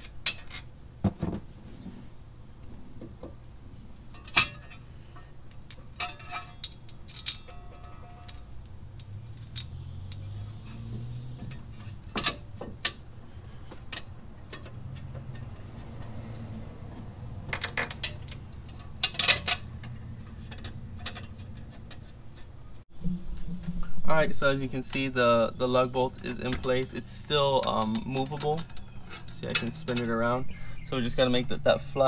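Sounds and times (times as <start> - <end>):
metal parts clinking and tapping: 0.0 - 0.7, 4.1 - 16.5, 17.5 - 22.5, 26.1 - 30.3.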